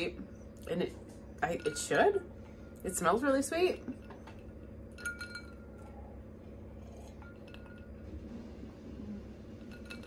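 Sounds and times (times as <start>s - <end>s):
low room hum: 0.0s - 10.0s
glass tumbler clinking: 1.4s - 2.2s, 3.6s - 5.9s, 6.8s - 8.1s, 9.6s - 10.0s.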